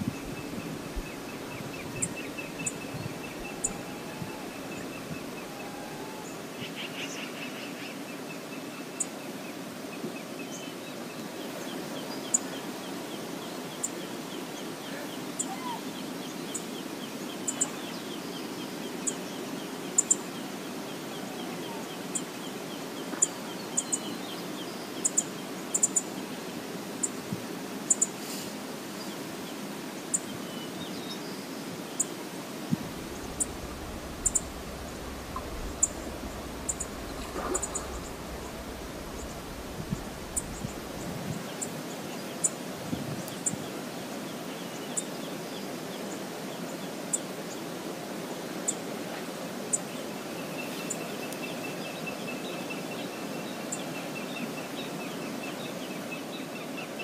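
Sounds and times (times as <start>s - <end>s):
waterfall rushing: 0.0s - 6.6s, 32.4s - 41.9s
bird calling rapidly: 32.9s - 41.0s.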